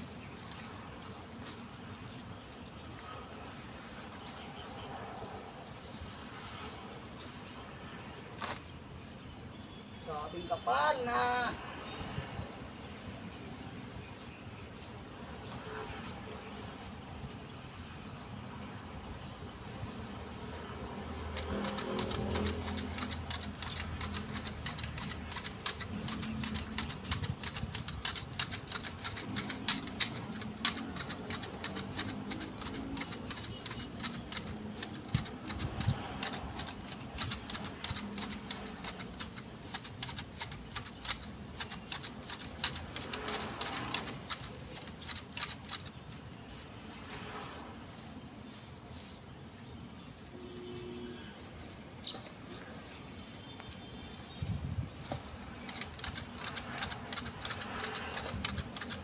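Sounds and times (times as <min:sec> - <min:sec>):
garden shears snipping twigs: 0:21.0 - 0:46.4, 0:55.2 - 0:59.0.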